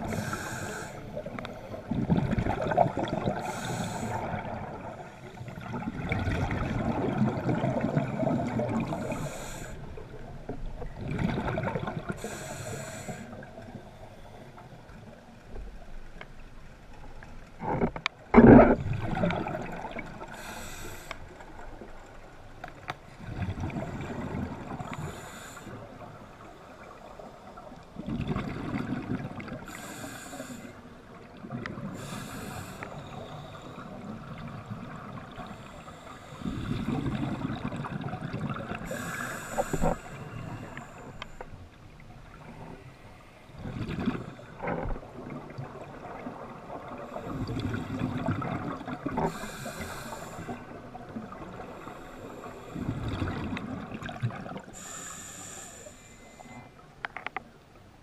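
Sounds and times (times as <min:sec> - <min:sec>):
diver breathing on regulator: 0:00.0 - 0:01.9, 0:03.4 - 0:04.4, 0:08.8 - 0:10.0, 0:12.2 - 0:14.6, 0:20.2 - 0:21.4, 0:24.0 - 0:26.0, 0:29.7 - 0:30.9, 0:31.9 - 0:34.0, 0:35.4 - 0:37.4, 0:38.8 - 0:41.5, 0:49.1 - 0:50.8, 0:51.6 - 0:53.4, 0:54.6 - 0:56.8.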